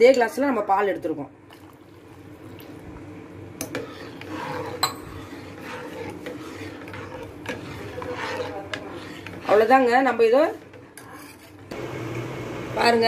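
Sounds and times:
steady low hum: 0:01.3 - 0:13.0
metal spoon scraping a pot: 0:03.6 - 0:11.7.

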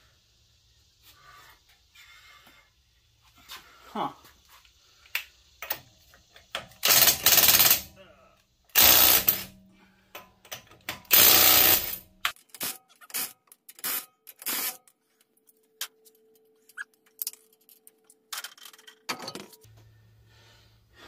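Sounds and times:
impact wrench hammering: 0:06.6 - 0:07.9, 0:08.7 - 0:12.8.

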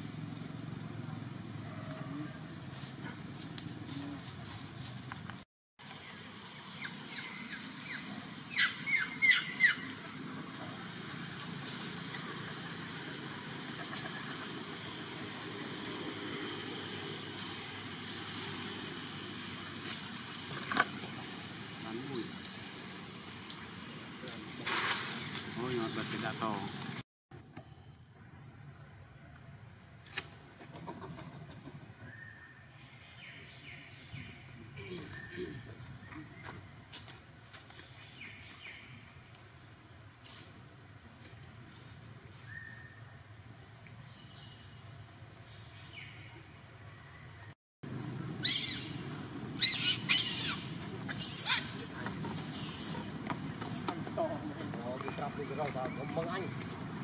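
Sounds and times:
forest ambience: 0:00.0 - 0:57.0
steady low hum: 0:47.9 - 0:57.0
short high squeaky calls: 0:48.4 - 0:49.0, 0:49.6 - 0:53.9.

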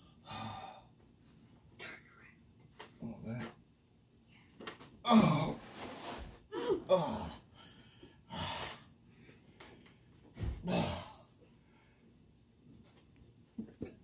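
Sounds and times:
people gasping and grunting: 0:06.5 - 0:07.6, 0:10.4 - 0:11.4.

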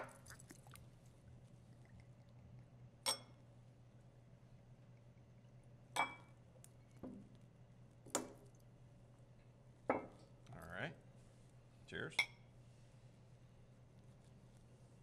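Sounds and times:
glasses clinking: 0:03.0 - 0:03.4, 0:06.0 - 0:06.4, 0:12.2 - 0:12.4.

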